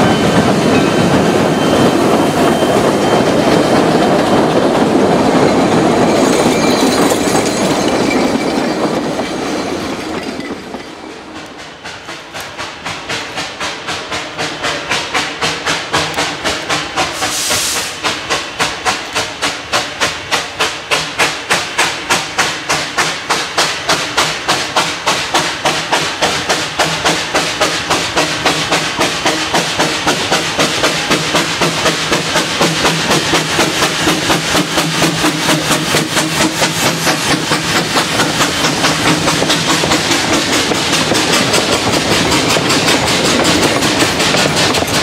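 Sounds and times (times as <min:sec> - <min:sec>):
steam hissing: 0:00.0 - 0:45.0
steam locomotive exhaust chuffing: 0:00.0 - 0:45.0.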